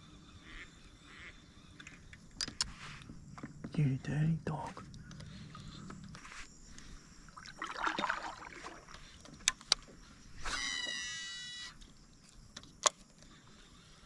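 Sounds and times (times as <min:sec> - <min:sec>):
water rustle: 0:04.8 - 0:10.1
fishing reel spool whining: 0:10.4 - 0:11.9.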